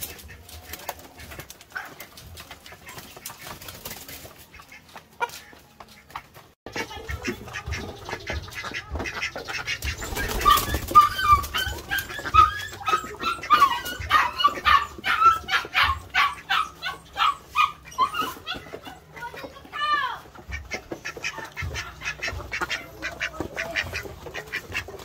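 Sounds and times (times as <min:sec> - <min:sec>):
animals calling sharply: 0:06.7 - 0:24.9.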